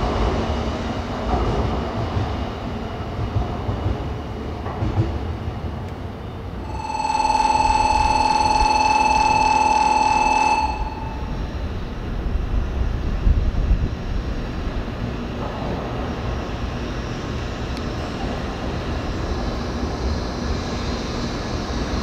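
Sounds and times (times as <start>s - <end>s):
steady beep tone: 6.6s - 11.3s.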